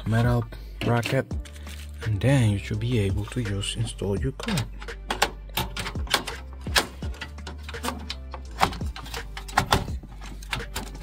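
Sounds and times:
metal and plastic clicks and knocks: 0:04.3 - 0:11.0.

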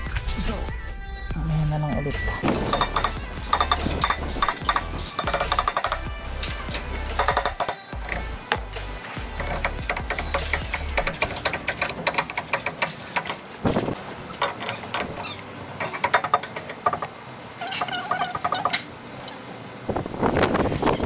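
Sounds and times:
ringing squeaks: 0:02.4 - 0:13.5, 0:14.2 - 0:19.4
metal clinks and knocks: 0:02.4 - 0:15.2, 0:15.8 - 0:17.1.

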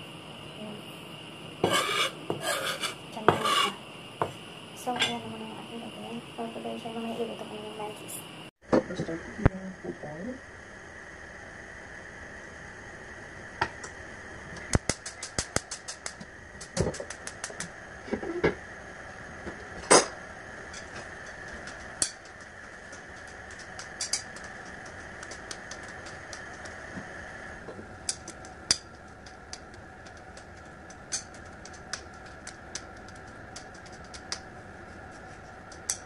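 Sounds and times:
gas burner igniter clicking: 0:14.6 - 0:17.8, 0:20.7 - 0:34.5.

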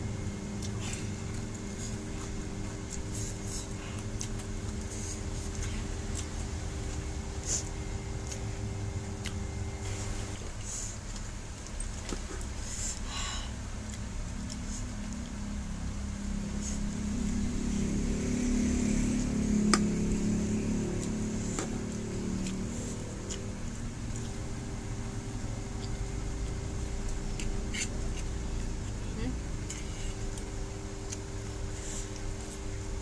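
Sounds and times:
low mechanical hum: 0:00.0 - 0:33.0.

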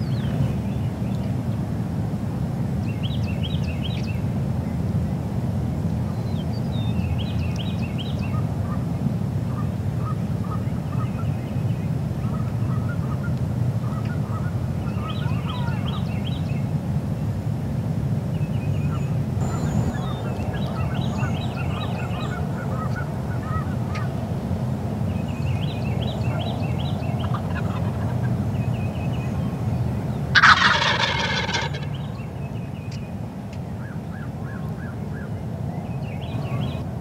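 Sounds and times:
chirping bird calls: 0:12.2 - 0:16.5, 0:18.7 - 0:24.2, 0:25.1 - 0:33.1
steady low hum: 0:19.1 - 0:30.3
turkey gobbling: 0:19.4 - 0:24.1, 0:27.2 - 0:28.3, 0:30.3 - 0:32.1.

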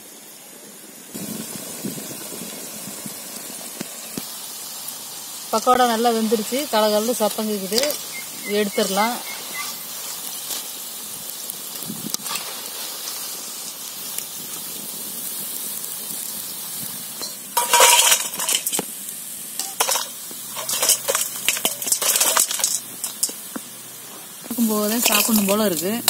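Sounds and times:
fritters sizzling in hot oil: 0:00.2 - 0:26.0
clatters and clinks on steel plate: 0:17.2 - 0:18.8, 0:19.6 - 0:23.4.

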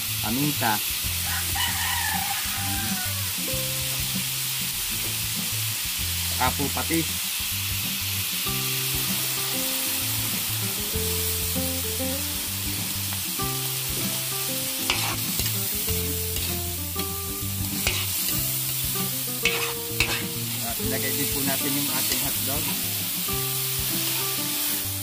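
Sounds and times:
background music: 0:00.0 - 0:25.0
chicken sizzling in a wok: 0:00.0 - 0:25.0
sauce pouring: 0:08.3 - 0:24.9
metal spatula scraping a pan: 0:14.8 - 0:15.6, 0:16.3 - 0:20.6.

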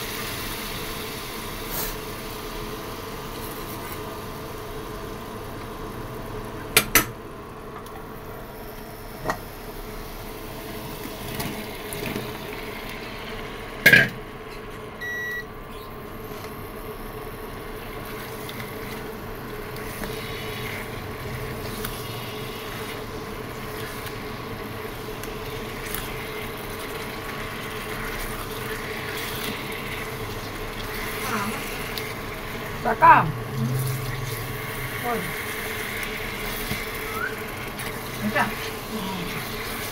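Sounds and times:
food frying in oil: 0:00.0 - 0:39.9
faint hum: 0:12.8 - 0:39.9
short beep: 0:15.0 - 0:15.5.

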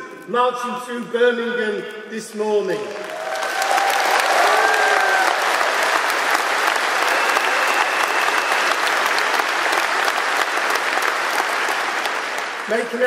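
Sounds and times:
crowd applauding: 0:02.8 - 0:13.0.

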